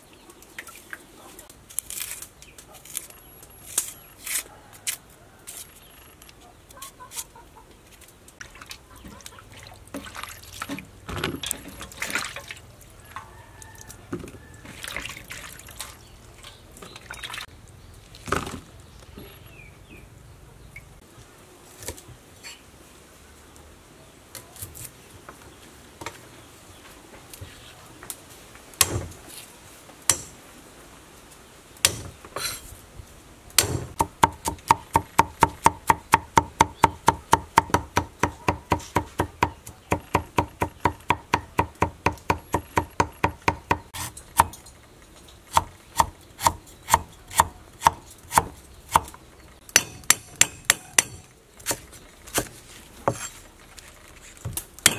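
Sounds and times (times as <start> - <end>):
cleaver chopping on wooden block: 33.6 - 44.6, 45.5 - 52.5.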